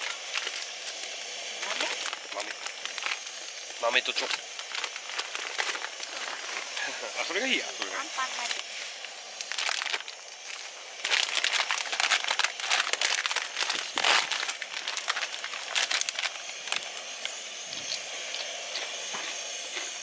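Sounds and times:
plastic snack bag crinkling: 0.0 - 6.8, 9.4 - 17.4.

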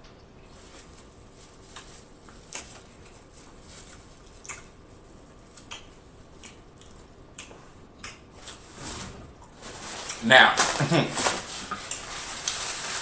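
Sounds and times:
chewing: 4.0 - 4.8, 5.6 - 8.6
mouth clicks and smacks: 4.2 - 4.8, 5.6 - 8.3.

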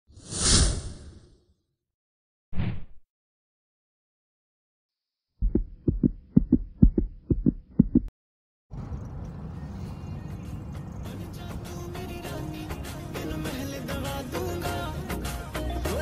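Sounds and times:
short swish: 0.2 - 1.2
low thumps in heartbeat rhythm: 5.4 - 8.1.

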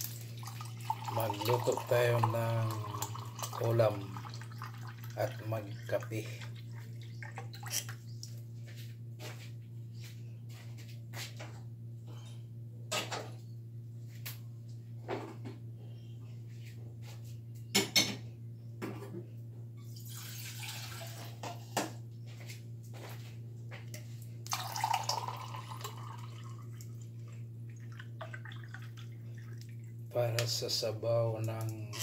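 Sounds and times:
water running: 0.0 - 8.4, 20.0 - 21.4, 24.4 - 32.0
steady low hum: 0.0 - 20.0, 21.4 - 32.0.

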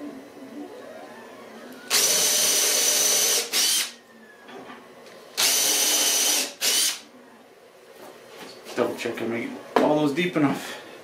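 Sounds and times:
power drill spinning: 1.7 - 4.0, 5.3 - 7.0.

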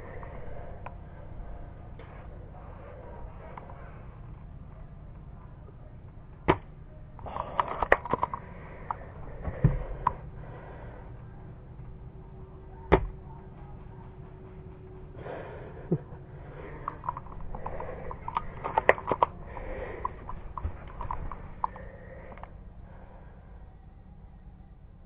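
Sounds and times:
clicks and rattles: 7.2 - 9.0, 16.7 - 22.5.

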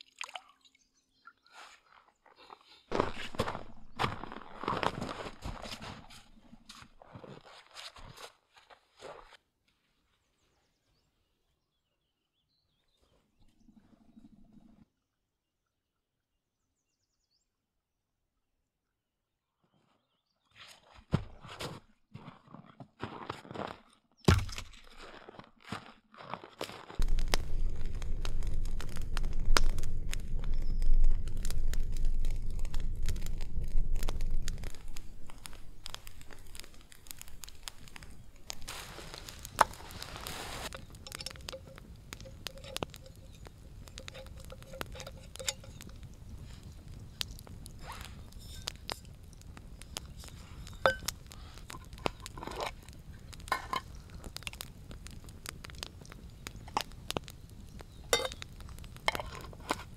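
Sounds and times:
twigs and bark crunching: 1.5 - 10.0, 20.6 - 59.9
campfire crackling and snapping: 26.9 - 59.9
strong low rumble: 27.0 - 37.2
short rustle: 38.6 - 40.7.

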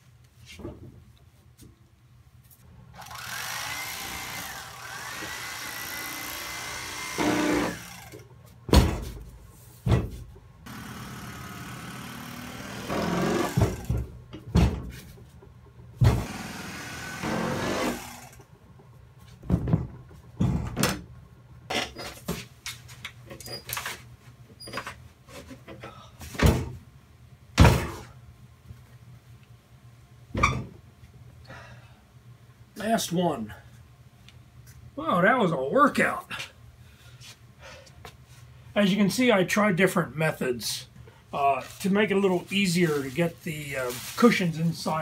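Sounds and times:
foam rubbing against cloth: 42.8 - 44.5.

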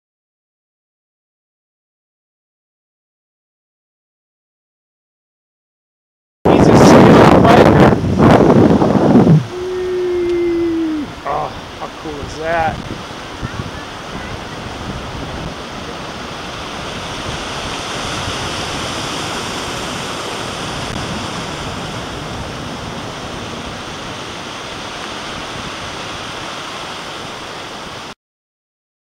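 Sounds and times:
river rushing over rocks: 6.5 - 28.1.

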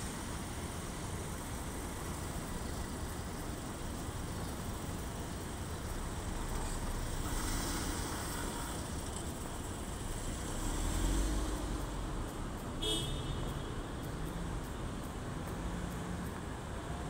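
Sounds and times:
steady city hum: 0.0 - 17.0
car horn toot: 12.8 - 13.6.

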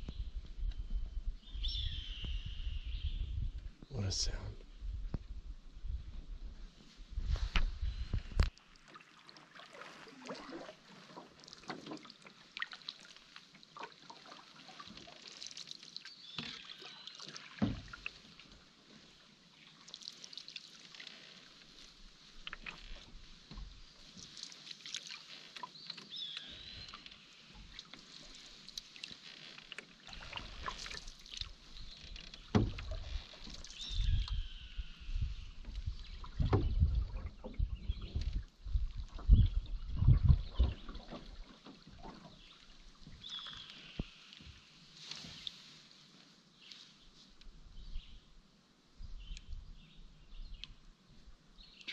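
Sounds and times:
paddle strokes splashing water: 7.4 - 46.1
paddle knocking against hull: 17.6 - 18.1, 32.1 - 34.3, 35.6 - 42.4.

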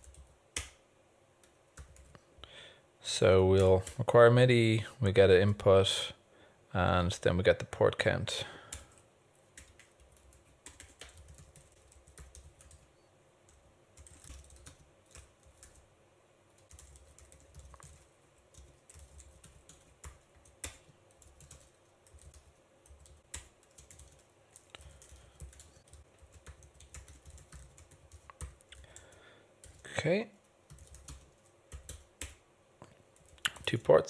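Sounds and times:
keyboard typing: 0.0 - 0.8, 1.4 - 2.2, 8.7 - 12.9, 13.5 - 15.8, 16.5 - 29.8, 30.7 - 32.4, 33.1 - 33.8.

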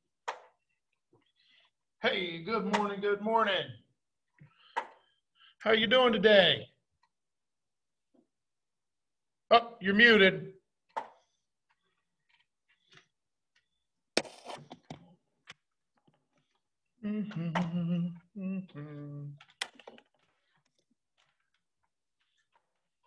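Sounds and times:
man humming low notes: 17.0 - 19.4.

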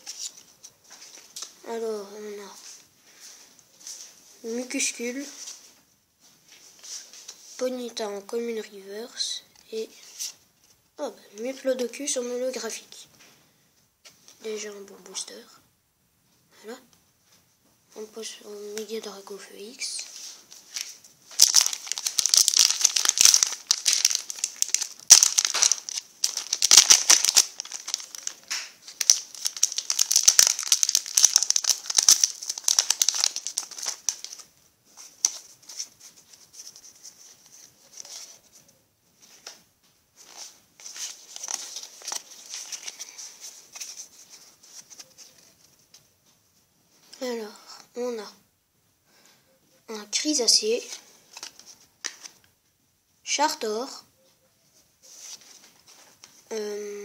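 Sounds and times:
foil wrapper crinkling and tearing: 20.7 - 36.8, 40.2 - 44.2.

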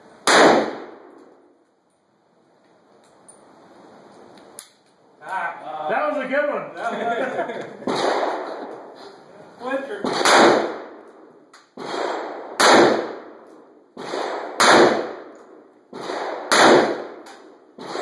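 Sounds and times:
revolver shots with echo: 10.0 - 11.0.

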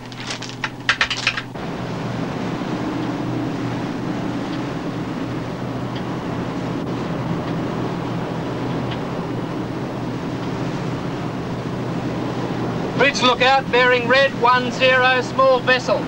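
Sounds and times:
boat engines droning: 0.0 - 16.0
sea noise: 0.0 - 16.0
wind: 0.0 - 16.0.

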